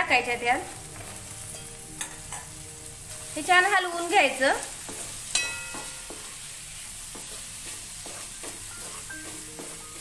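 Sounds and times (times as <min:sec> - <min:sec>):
masala sizzling: 0:00.0 - 0:10.0
wooden spatula scraping metal pan: 0:04.8 - 0:10.0.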